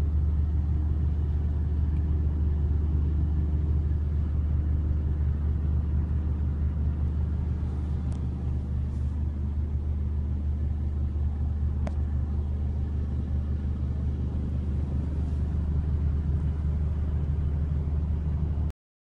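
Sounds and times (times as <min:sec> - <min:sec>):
diesel truck engine idling: 0:00.0 - 0:18.7.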